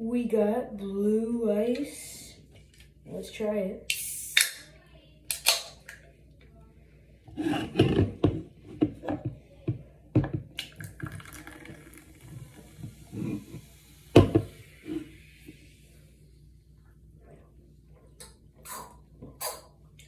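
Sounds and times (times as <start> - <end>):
drink pouring into metal cup: 10.6 - 15.2
bubbles fizzing: 10.7 - 15.7.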